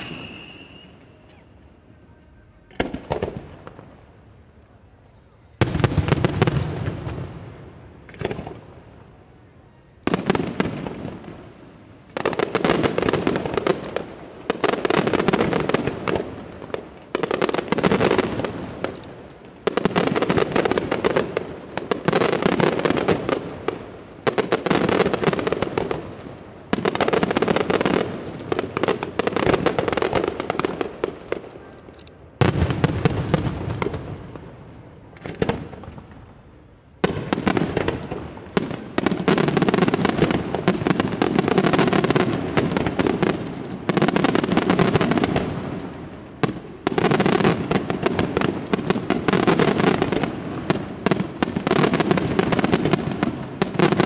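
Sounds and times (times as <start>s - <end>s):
fireworks bursting and crackling: 0.0s - 4.7s, 5.3s - 9.4s, 10.0s - 54.0s.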